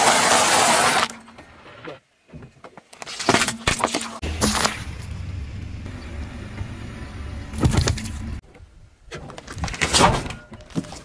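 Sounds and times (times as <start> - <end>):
low engine rumble: 4.2 - 8.4
tyre crushing objects: 7.5 - 8.3.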